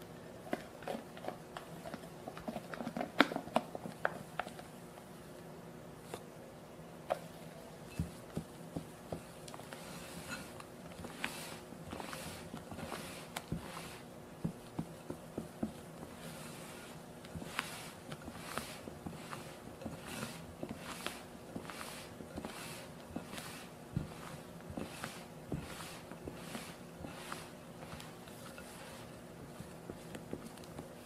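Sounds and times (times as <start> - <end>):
spatula swishing batter: 8.0 - 31.0
spatula scraping glass bowl: 9.8 - 14.0, 16.2 - 29.1.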